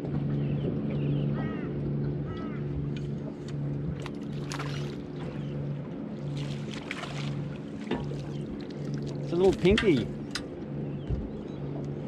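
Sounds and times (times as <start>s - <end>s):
boat engine idling: 0.0s - 12.0s.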